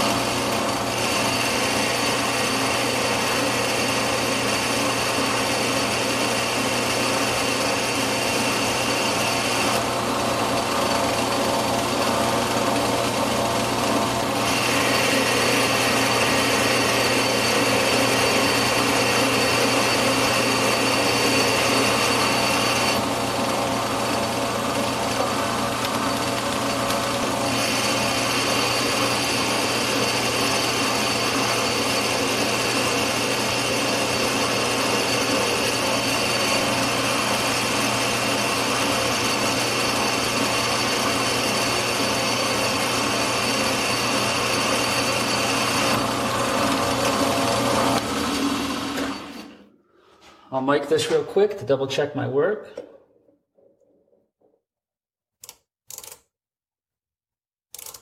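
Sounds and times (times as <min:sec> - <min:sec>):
metal lathe motor hum: 0:00.0 - 0:49.7.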